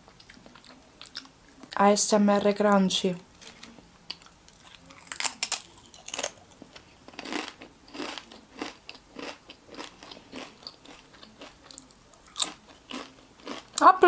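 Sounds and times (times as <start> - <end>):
tortilla chip crunching: 4.1 - 13.8.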